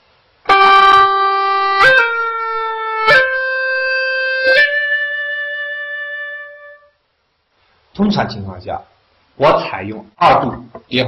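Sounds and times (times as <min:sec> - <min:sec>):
gourd flute with sliding notes: 0:00.5 - 0:07.0.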